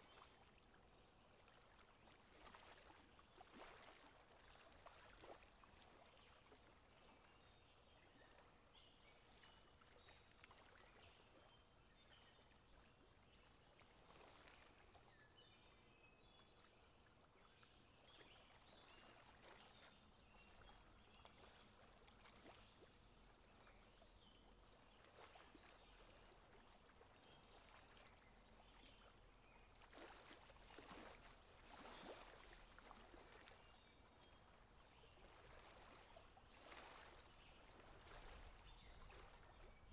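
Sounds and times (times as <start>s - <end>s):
faint running water: 0.0s - 39.9s.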